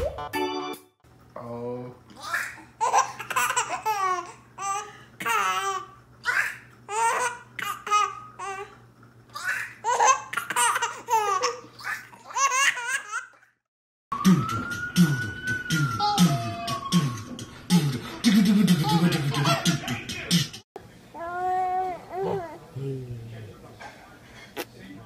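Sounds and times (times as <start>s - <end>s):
baby laughing: 2.2s - 13.5s, 18.7s - 20.0s
man beatboxing: 14.2s - 20.6s.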